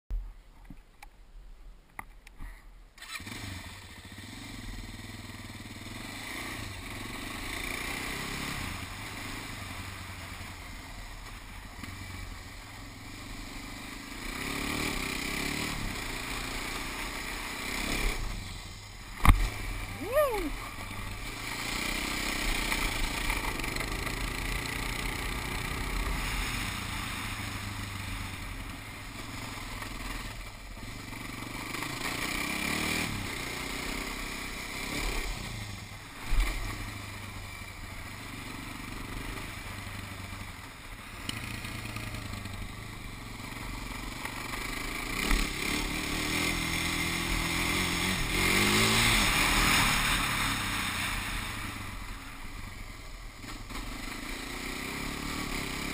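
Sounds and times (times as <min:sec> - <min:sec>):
quad bike engine revving: 0:03.0 - 0:55.9
sharp thump: 0:19.2 - 0:19.6.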